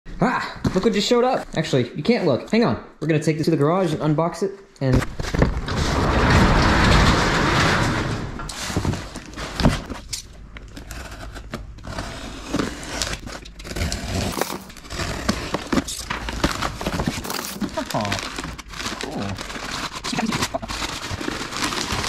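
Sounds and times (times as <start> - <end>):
knife scraping cardboard: 10.8 - 22.0.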